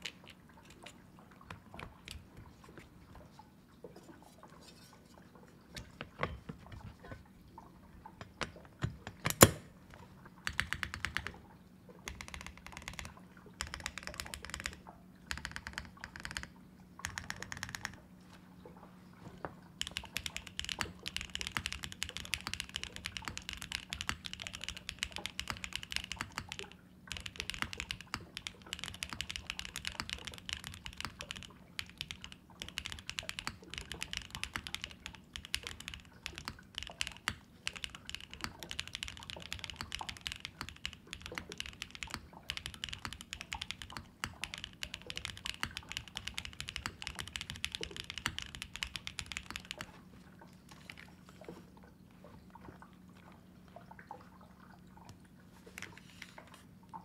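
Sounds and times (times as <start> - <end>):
fast typing on mechanical keyboard: 0.0 - 0.4, 10.4 - 11.4, 12.1 - 18.0, 19.8 - 50.0.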